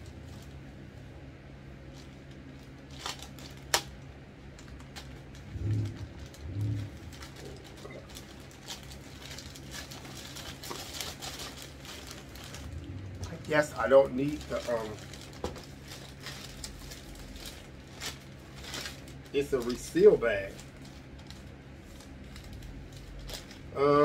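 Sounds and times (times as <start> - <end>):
plastic bag crinkling: 1.9 - 3.9, 4.6 - 23.7
man humming: 23.7 - 24.0.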